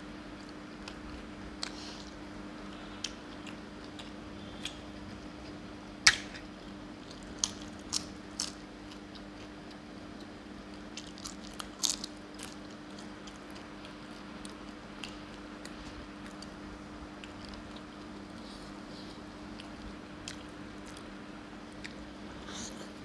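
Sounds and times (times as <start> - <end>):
crisp food crunching: 3.0 - 18.4.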